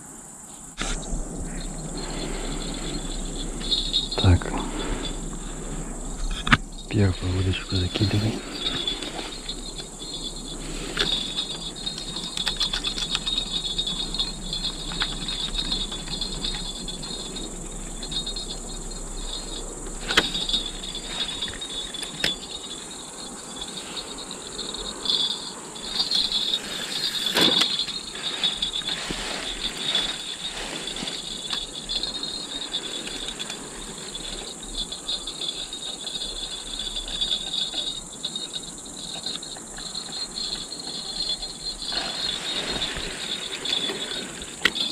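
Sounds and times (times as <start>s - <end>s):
crickets chirping: 0.0s - 44.9s
handling clicks and knocks: 19.3s - 44.9s.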